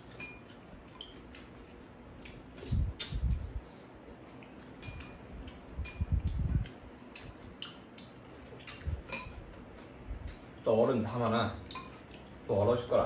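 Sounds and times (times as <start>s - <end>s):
spoons clinking against bowls: 0.0s - 1.1s, 4.8s - 5.2s, 5.8s - 6.1s, 9.0s - 9.6s, 11.7s - 12.0s.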